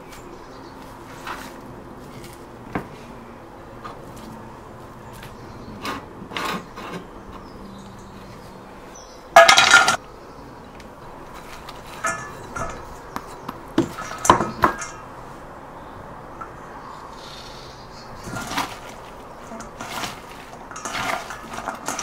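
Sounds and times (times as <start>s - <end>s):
vegetables clattering into steel bowl: 9.4s - 10.0s, 11.4s - 13.0s, 13.8s - 15.1s, 18.2s - 22.0s
vegetables tossed in bowl: 18.2s - 22.0s.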